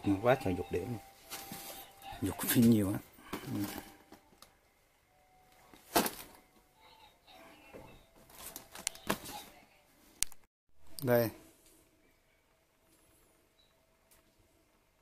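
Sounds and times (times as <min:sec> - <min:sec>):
plastic bag rustling: 0:08.2 - 0:09.5.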